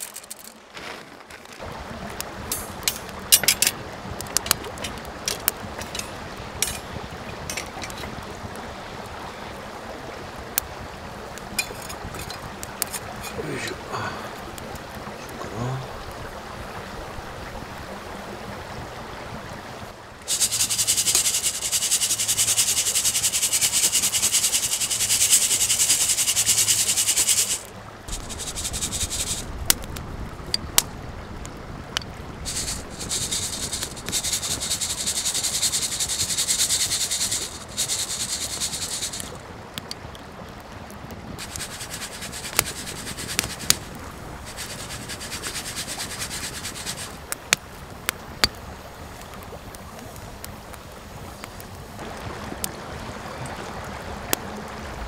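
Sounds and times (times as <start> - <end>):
grains rattling in mesh roaster: 0.0 - 0.5, 20.3 - 29.5, 32.5 - 39.4, 41.4 - 43.8, 44.4 - 47.2
campfire crackles: 0.0 - 55.0.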